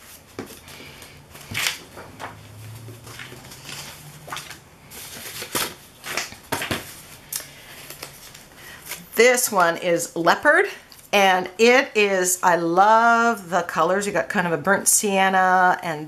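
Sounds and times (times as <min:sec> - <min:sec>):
paper napkins rustling: 0:00.0 - 0:09.6.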